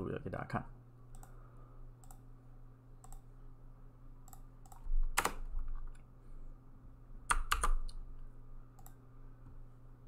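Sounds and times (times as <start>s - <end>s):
faint low hum: 0.0s - 10.0s
keyboard keystrokes: 7.3s - 8.0s.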